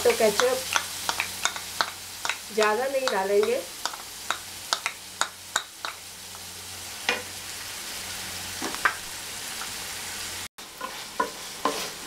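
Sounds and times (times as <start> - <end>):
vegetables sizzling in oil: 0.0 - 12.0
spatula scraping a pan: 10.6 - 12.0.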